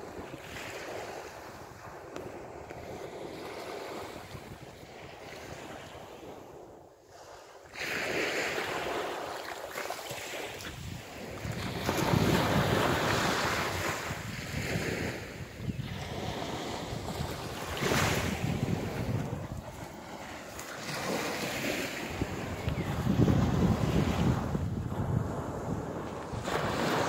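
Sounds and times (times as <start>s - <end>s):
small waves washing onto beach: 0.0s - 27.0s
wind rushing over microphone: 10.5s - 27.0s.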